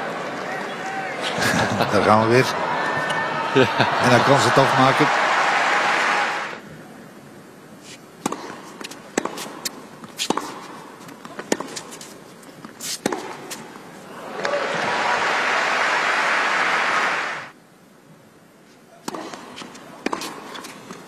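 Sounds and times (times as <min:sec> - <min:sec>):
crowd applauding: 0:00.0 - 0:06.6, 0:14.2 - 0:17.5
racquet striking tennis ball: 0:08.2 - 0:12.0, 0:12.8 - 0:13.8, 0:19.1 - 0:21.0.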